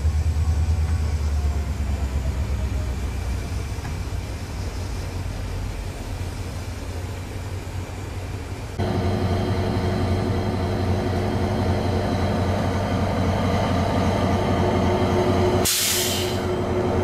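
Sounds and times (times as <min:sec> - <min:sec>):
diesel locomotive engine hum: 0:00.0 - 0:17.0
loud hiss: 0:15.6 - 0:16.5.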